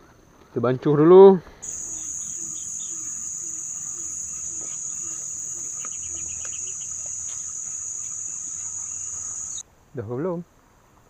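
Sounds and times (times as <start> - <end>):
insect chorus drone: 1.6 - 9.6
small chirps: 1.6 - 9.6.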